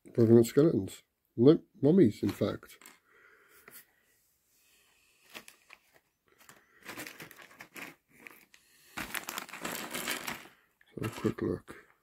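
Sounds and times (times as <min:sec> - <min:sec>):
plastic bag crinkling: 0:05.3 - 0:11.8.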